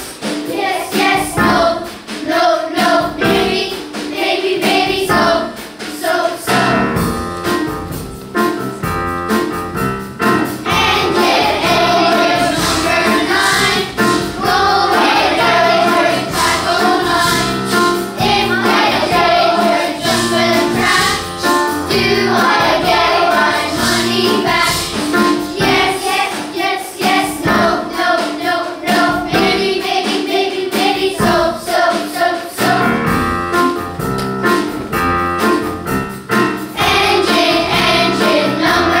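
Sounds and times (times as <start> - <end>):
children's choir singing: 0.0 - 7.0, 10.6 - 33.2, 36.6 - 39.0
low instrumental backing: 6.5 - 26.2.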